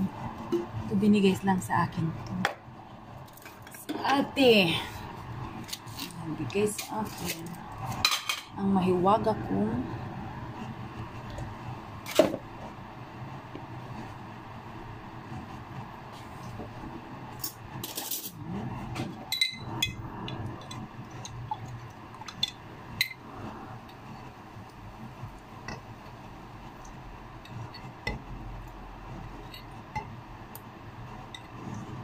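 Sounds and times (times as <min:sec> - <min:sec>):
dishes and cutlery clinking: 0:08.0 - 0:08.5, 0:17.4 - 0:18.4, 0:19.3 - 0:20.0.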